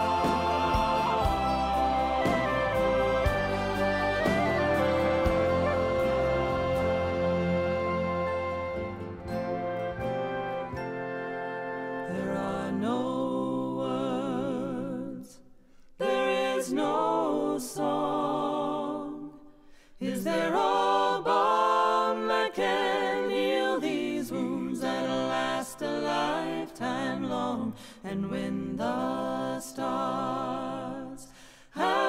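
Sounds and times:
musical accompaniment: 0:00.0 - 0:12.8
voices singing long wavering notes: 0:00.0 - 0:15.4, 0:31.8 - 0:32.0.

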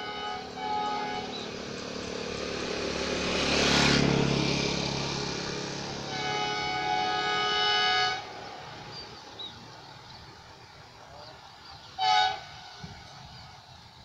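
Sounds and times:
distant locomotive air horn: 0:00.0 - 0:02.4, 0:05.9 - 0:09.0, 0:12.0 - 0:13.8.

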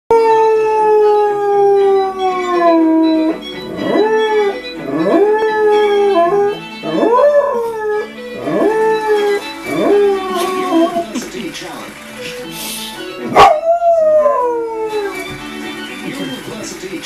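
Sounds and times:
dog howling: 0:00.1 - 0:11.1, 0:13.3 - 0:15.3
tv theme music: 0:00.4 - 0:17.0.

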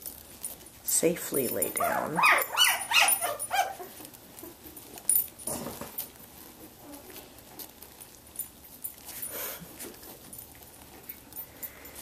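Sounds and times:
puppies whimpering and squealing: 0:01.7 - 0:04.7.

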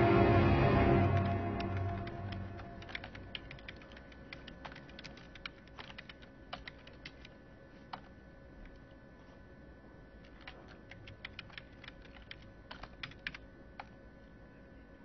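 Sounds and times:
music score: 0:00.0 - 0:03.6
typing on a keyboard: 0:01.2 - 0:08.8, 0:10.2 - 0:13.9.

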